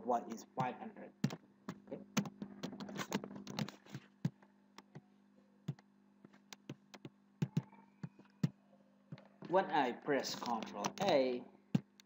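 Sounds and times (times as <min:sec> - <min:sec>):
computer keyboard typing: 0:00.6 - 0:05.0, 0:06.5 - 0:08.6, 0:10.3 - 0:11.2, 0:11.8 - 0:12.0.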